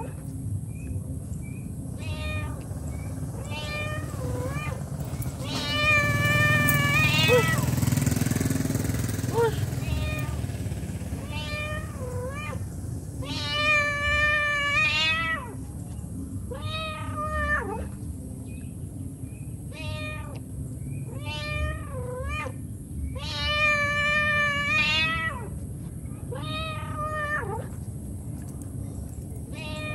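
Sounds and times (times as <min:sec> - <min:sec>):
cat meowing: 0:02.0 - 0:02.6, 0:03.4 - 0:04.8, 0:05.4 - 0:07.7, 0:09.3 - 0:10.4, 0:11.2 - 0:12.6, 0:13.2 - 0:15.6, 0:16.5 - 0:17.9, 0:19.7 - 0:20.4, 0:21.1 - 0:22.6, 0:23.2 - 0:25.5, 0:26.3 - 0:27.7, 0:29.5 - 0:29.9.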